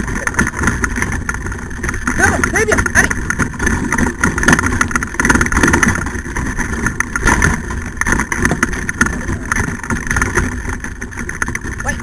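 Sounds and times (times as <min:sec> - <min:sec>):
kart rumbling over dirt trail: 0:00.0 - 0:12.0.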